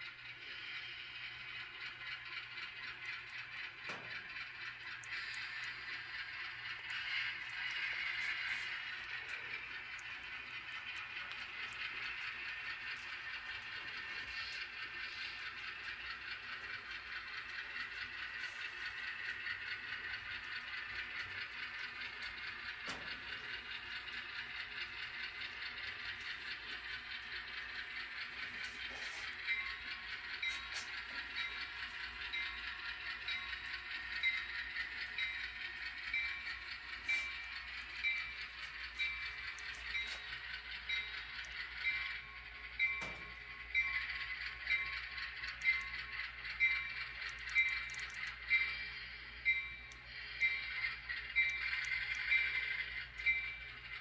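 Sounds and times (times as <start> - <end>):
model diesel locomotive sound: 0.0 - 54.0
regular clicks: 30.4 - 53.5.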